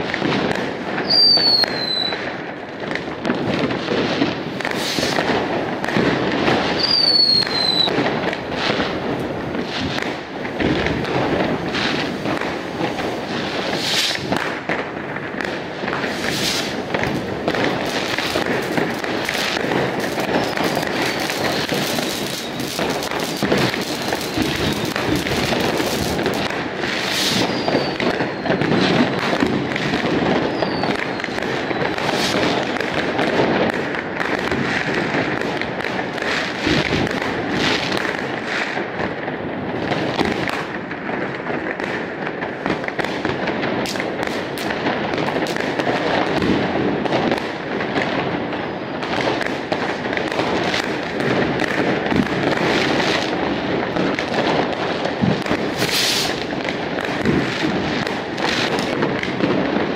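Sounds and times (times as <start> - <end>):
fireworks bangs and crackling: 0.0 - 59.9
firework whistle falling in pitch: 1.0 - 2.2, 6.8 - 7.9, 27.1 - 28.8, 30.4 - 32.0.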